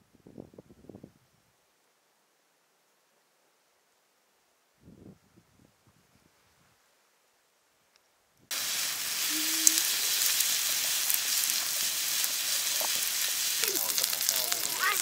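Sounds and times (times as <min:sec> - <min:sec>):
pork sizzling on hot stone: 0:08.5 - 0:15.0.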